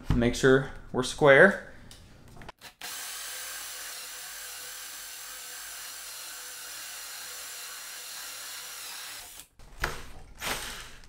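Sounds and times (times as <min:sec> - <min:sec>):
drill with hole saw cutting wood: 0:02.6 - 0:09.5.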